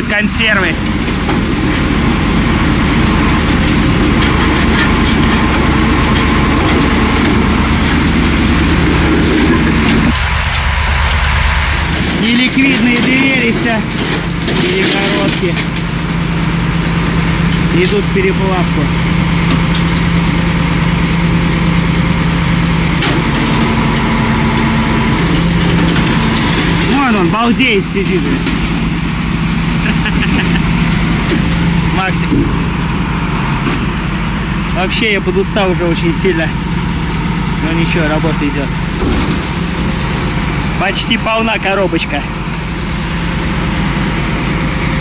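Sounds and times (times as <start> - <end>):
truck diesel engine running: 0.0 - 45.0
higher steady tone: 9.2 - 13.3.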